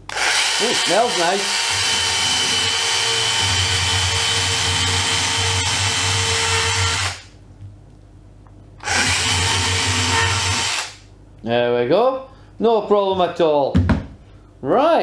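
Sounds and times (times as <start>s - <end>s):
cordless saw cutting fruit: 0.1s - 7.2s.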